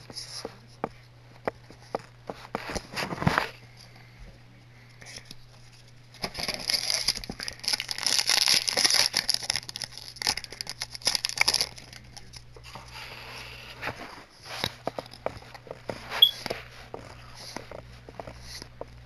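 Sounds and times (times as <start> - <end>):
foil wrapper crinkling: 6.1 - 12.4.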